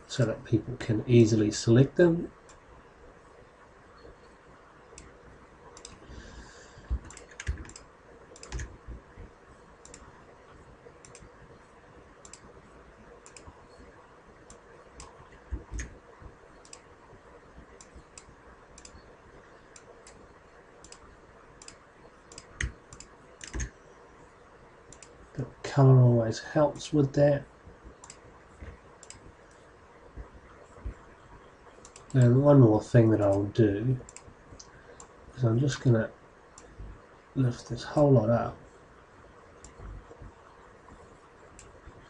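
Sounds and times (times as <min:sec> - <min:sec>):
computer mouse clicking: 0:05.8 - 0:06.1, 0:06.8 - 0:08.8, 0:09.8 - 0:10.1, 0:11.0 - 0:11.3, 0:12.2 - 0:12.5, 0:13.2 - 0:13.6, 0:14.4 - 0:16.0, 0:16.6 - 0:16.9, 0:17.8 - 0:19.0, 0:20.8 - 0:23.8, 0:24.9 - 0:25.2, 0:28.0 - 0:29.6, 0:31.8 - 0:32.2, 0:34.0 - 0:35.2, 0:41.5 - 0:41.8.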